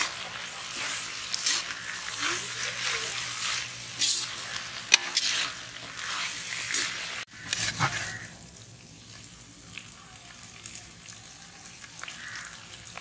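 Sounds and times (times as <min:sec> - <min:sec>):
metal spatula scraping a pan: 0:00.0 - 0:08.4
noodles sizzling in a pan: 0:00.0 - 0:13.0
metal clank on a pan: 0:04.9 - 0:05.2.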